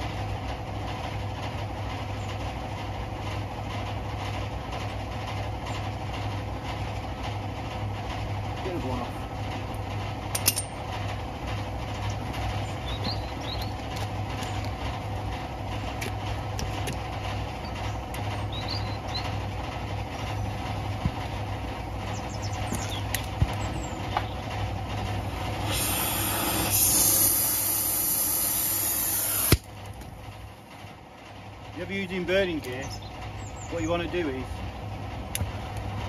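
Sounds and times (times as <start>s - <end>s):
steady low hum: 0.0s - 36.0s
cutting torch hissing: 25.4s - 29.7s
torch sharp pop: 28.0s - 29.7s.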